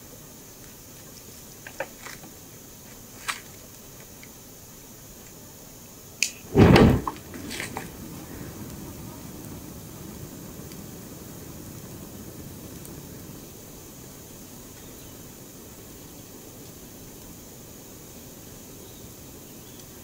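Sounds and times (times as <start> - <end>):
flames burning: 0.0 - 20.0
fire igniting with a whoosh: 6.2 - 20.0.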